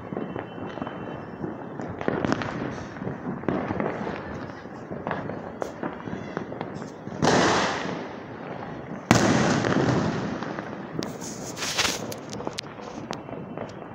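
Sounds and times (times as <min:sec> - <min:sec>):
firecrackers crackling pops: 0:00.0 - 0:13.9
loud firework bangs: 0:00.0 - 0:13.9
sharp firework cracks: 0:00.0 - 0:13.9.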